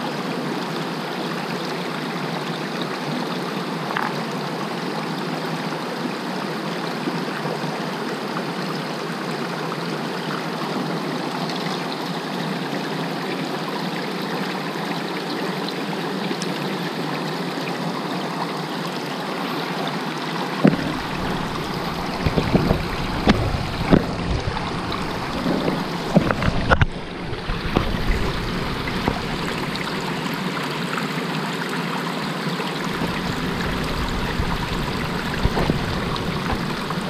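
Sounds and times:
stream rushing over boulders: 0.0 - 37.0
camera handling thumps: 20.6 - 29.4.

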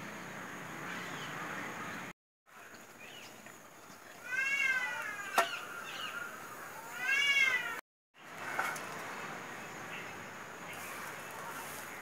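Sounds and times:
cat meowing: 6.8 - 7.8.

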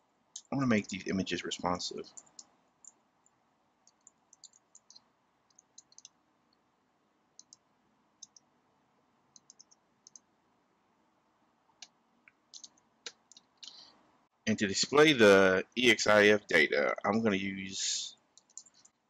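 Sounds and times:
computer keyboard typing clicks: 3.9 - 6.2, 9.4 - 10.2, 12.6 - 13.5, 18.4 - 19.0.

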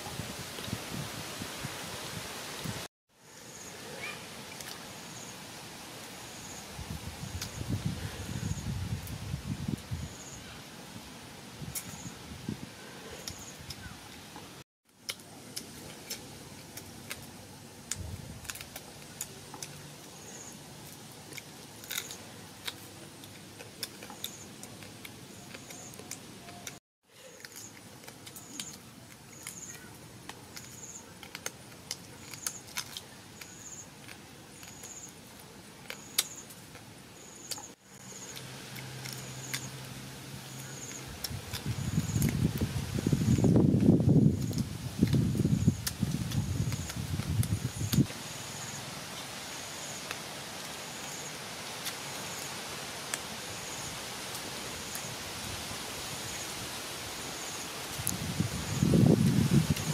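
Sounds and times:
forest ambience hiss: 0.0 - 14.6, 33.3 - 59.9
chewing clicks and crunches: 20.8 - 39.8.

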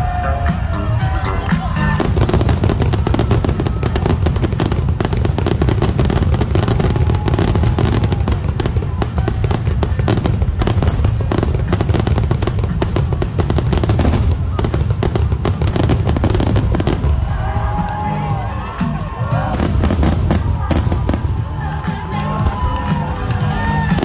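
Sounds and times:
fireworks bursting and crackling: 0.0 - 24.0.

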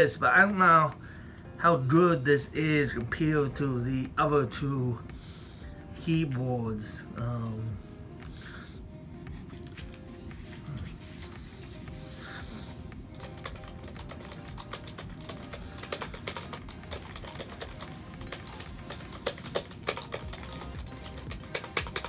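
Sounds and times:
plastic keyboard keys clicking: 13.1 - 22.0.

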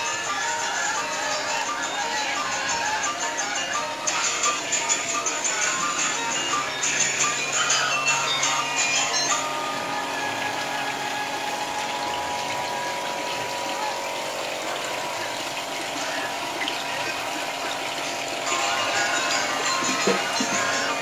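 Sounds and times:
fountain water splashing into pond: 8.4 - 21.0.

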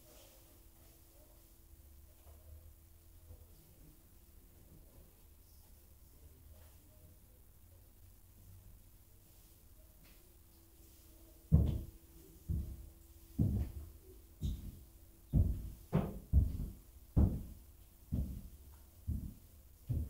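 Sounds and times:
faint steady hum: 0.0 - 20.0
slow footsteps thudding: 11.5 - 20.0.

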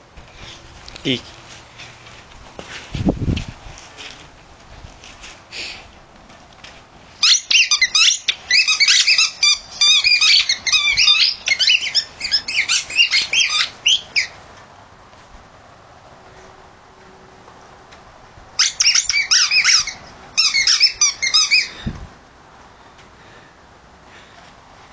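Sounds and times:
squeaky toy squeaking: 7.2 - 14.3, 18.6 - 21.8.

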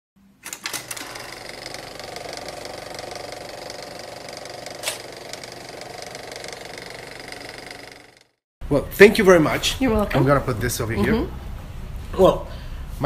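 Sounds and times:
film projector clatter: 0.4 - 8.4.

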